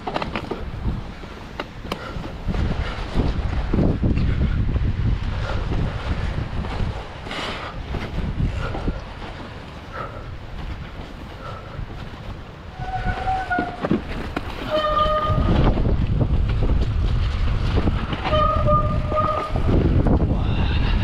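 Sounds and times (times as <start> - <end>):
wind on microphone: 0.0 - 21.0
high-pitched squeals: 12.7 - 13.9, 14.6 - 15.6, 18.2 - 19.8.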